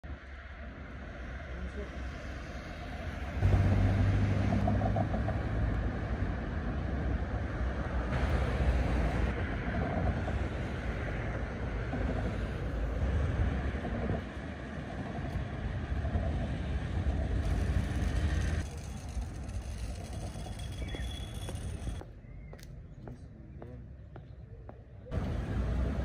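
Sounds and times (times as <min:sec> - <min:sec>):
low traffic rumble: 0:00.0 - 0:26.0
cars driving past: 0:00.1 - 0:19.1, 0:25.1 - 0:26.0.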